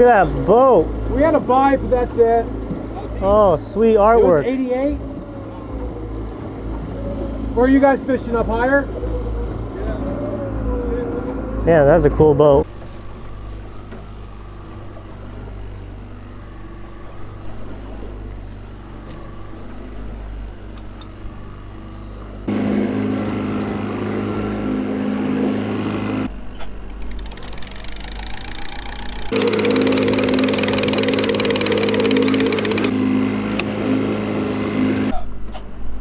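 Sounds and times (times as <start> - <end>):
outboard motor running: 0.0 - 35.4
wind: 0.0 - 36.0
water noise: 26.8 - 33.0.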